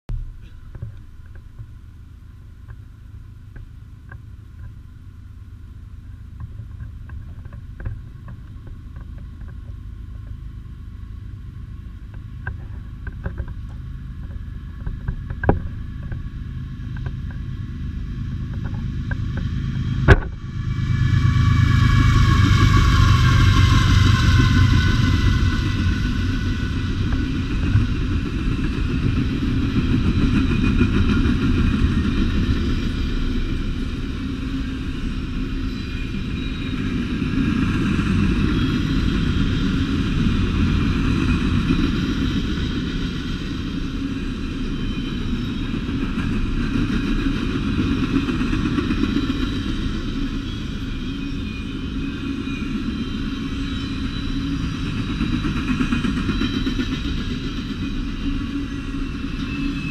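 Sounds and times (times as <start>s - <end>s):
locomotive engine rumble: 0.1s - 59.9s
wheels on rail: 0.1s - 59.9s.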